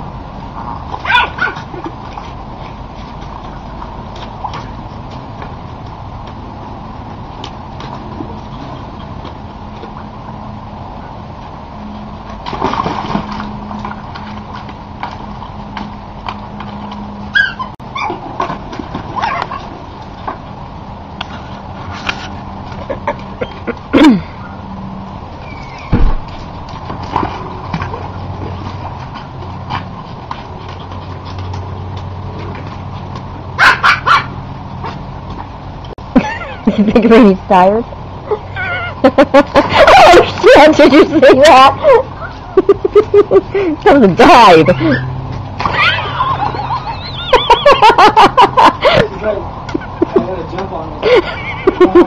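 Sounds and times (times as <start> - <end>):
dog barking: 1.0 - 1.6, 33.6 - 34.4
dog whining: 17.3 - 18.2, 25.4 - 26.1, 38.3 - 39.1, 41.8 - 42.7, 44.4 - 47.9
dog whimpering: 17.4 - 18.2, 38.3 - 39.1, 41.8 - 42.7, 44.4 - 47.9.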